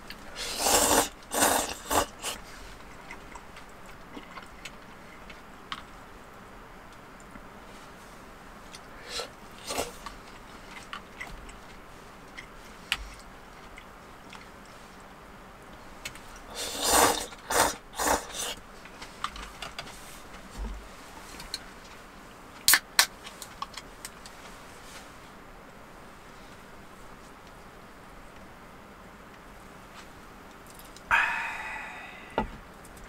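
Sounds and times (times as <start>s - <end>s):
person slurping noodles: 0.3s - 2.5s, 9.0s - 10.0s, 16.5s - 18.6s, 31.1s - 32.4s.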